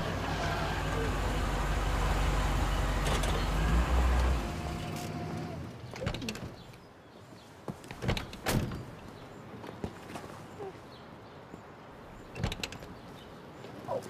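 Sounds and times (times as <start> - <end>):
vehicle engine rumbling: 0.0 - 6.9.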